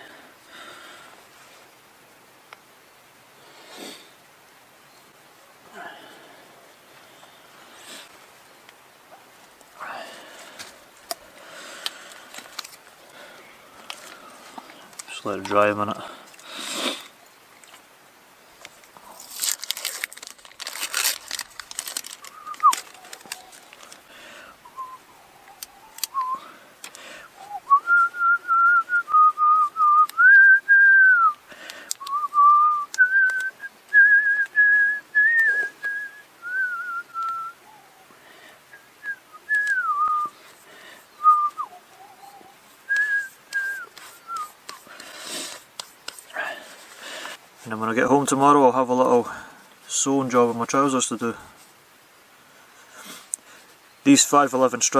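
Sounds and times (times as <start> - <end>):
paper wrapper rustling: 12.0 - 12.9, 18.6 - 24.1
person whistling a slow tune: 22.3 - 22.8, 24.6 - 25.1, 25.7 - 26.5, 27.4 - 31.4, 32.0 - 37.6, 38.7 - 40.4, 41.1 - 44.9.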